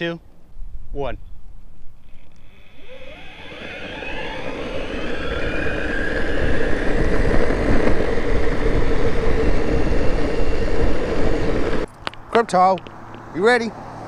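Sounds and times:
wind noise: 0.4 - 13.0
electric skateboard motor whine: 2.0 - 11.9
skateboard wheel noise: 2.0 - 12.2.

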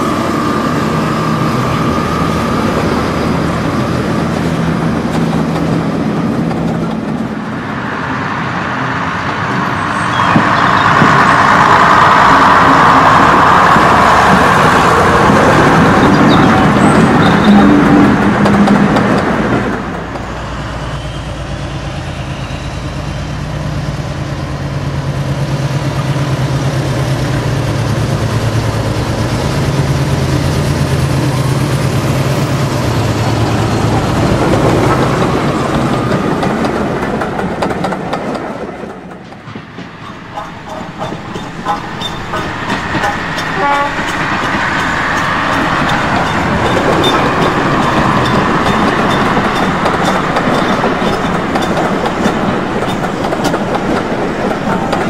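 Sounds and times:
wheels clicking over rail joints: 2.7 - 7.4, 12.6 - 20.3, 33.4 - 55.0.

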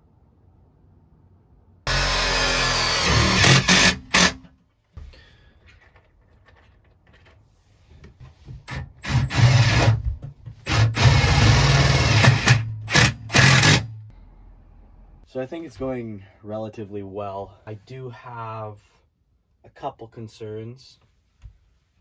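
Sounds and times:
cordless drill driving screws: 1.9 - 4.5, 8.7 - 10.0, 10.6 - 13.8.

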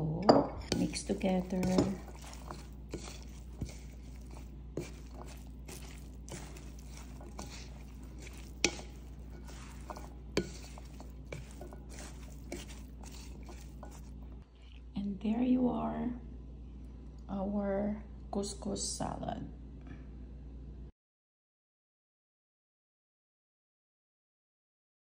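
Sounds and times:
spatula knocking against bowl: 0.7 - 14.1
spatula scraping food in bowl: 0.7 - 14.4.

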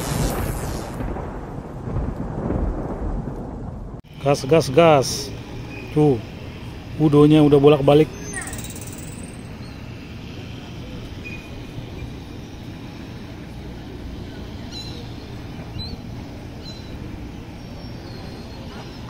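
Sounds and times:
low outdoor rumble: 0.0 - 19.0
faint high chirps: 7.4 - 13.3.

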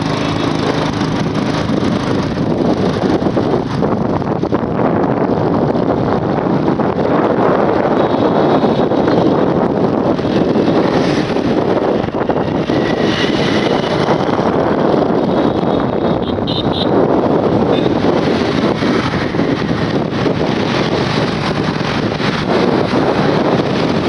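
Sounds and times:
passing motorbikes: 0.0 - 24.0
rush of riding a motorbike: 0.0 - 24.0
wind buffeting microphone: 0.0 - 24.0.

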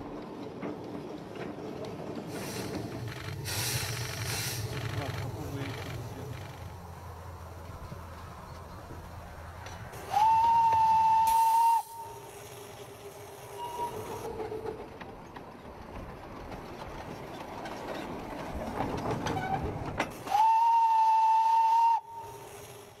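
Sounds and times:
locomotive steam hissing: 2.2 - 14.7, 20.1 - 23.0
steam locomotive whistle: 10.0 - 12.5, 13.5 - 14.3, 20.2 - 22.8.

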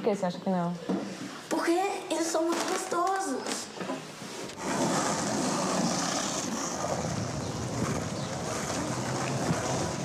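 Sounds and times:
wind buffeting microphone: 4.6 - 10.0.

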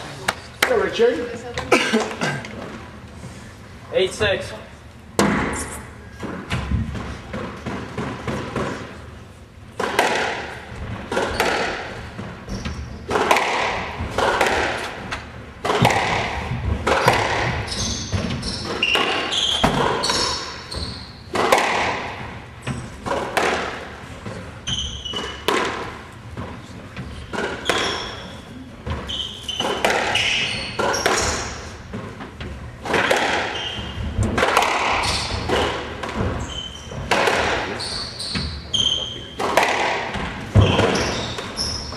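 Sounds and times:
squash ball hits echoing: 5.2 - 9.0, 9.7 - 41.9
shoe squeaks: 12.5 - 13.1, 17.6 - 21.3, 24.6 - 25.5, 27.1 - 31.7, 33.4 - 34.2, 35.0 - 35.7, 36.3 - 37.1, 37.7 - 39.4, 40.5 - 41.9.

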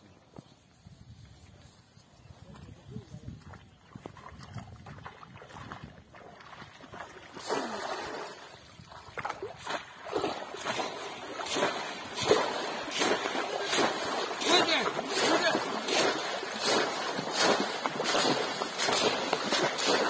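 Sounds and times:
wading splashes: 3.4 - 20.0
fish traps splashing into water: 6.2 - 20.0.

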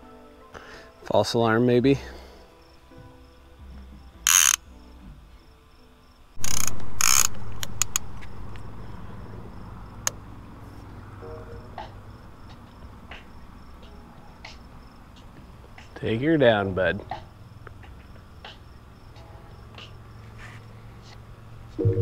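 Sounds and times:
night insects chirping: 0.0 - 21.9
sharp clicks: 6.4 - 8.7.

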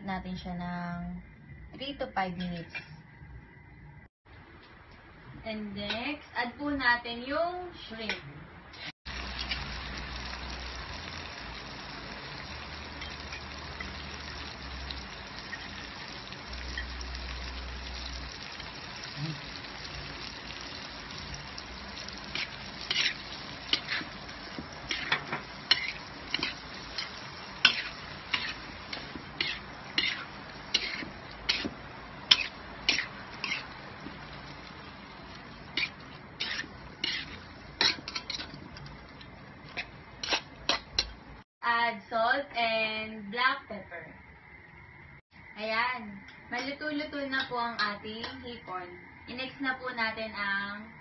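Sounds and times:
shrimp sizzling in a pan: 9.1 - 41.4
utensil scraping a pan: 22.3 - 24.2, 24.8 - 33.7, 35.7 - 38.6, 39.7 - 41.2.

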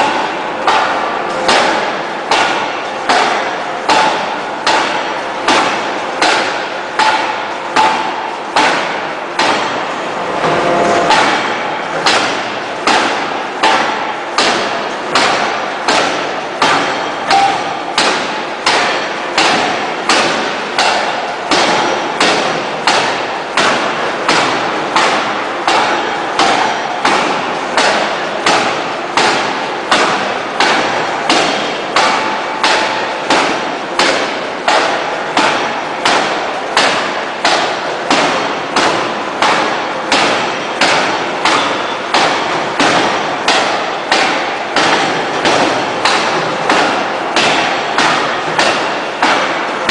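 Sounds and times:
forging hammer banging on steel: 0.0 - 49.9.

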